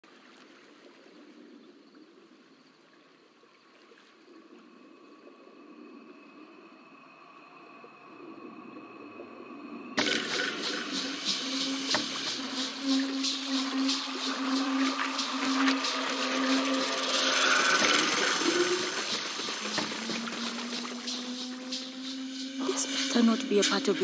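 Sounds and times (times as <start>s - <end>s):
seawater splashing and streaming: 0.0s - 1.6s, 2.3s - 24.0s
faint steady tones: 0.9s - 24.0s
low held tone: 10.0s - 24.0s.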